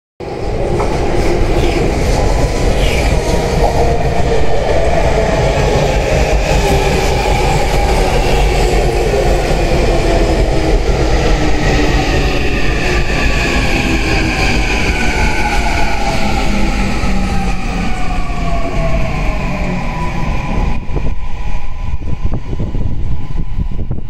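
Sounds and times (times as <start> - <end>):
train wheels rumbling on rails: 0.2 - 24.0.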